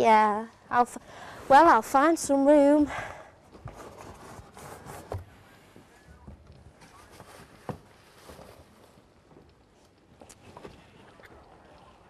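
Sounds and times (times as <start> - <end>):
knocks and rustles of belongings: 6.2 - 9.5.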